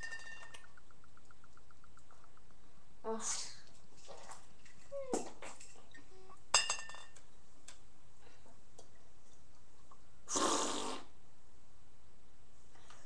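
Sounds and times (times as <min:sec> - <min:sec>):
glass bottles clinking: 0:00.0 - 0:00.9, 0:06.5 - 0:07.2.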